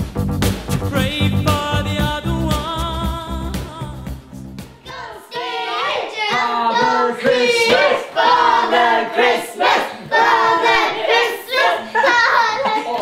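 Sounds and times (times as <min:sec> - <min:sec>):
children singing: 0:04.7 - 0:13.0.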